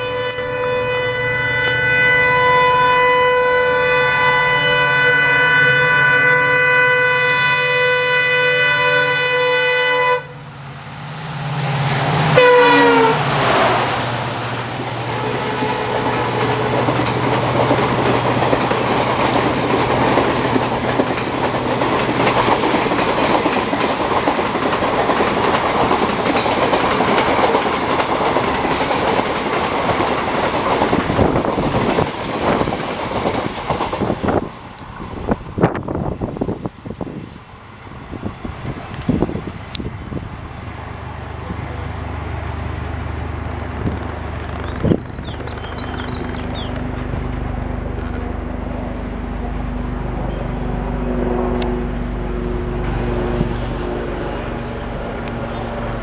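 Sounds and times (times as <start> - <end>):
multi-tone train horn blast: 0.0 - 10.5, 12.1 - 17.1, 49.2 - 56.0
short horn blast dropping in pitch: 0.0 - 10.5, 12.2 - 14.1, 50.9 - 55.7
diesel locomotive engine: 0.0 - 56.0
train wheels clattering: 11.8 - 34.4, 43.4 - 48.4.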